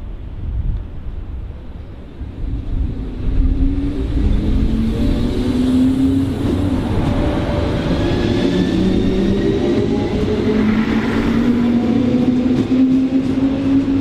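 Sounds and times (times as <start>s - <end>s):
train wheels rumbling on rails: 0.0s - 14.0s.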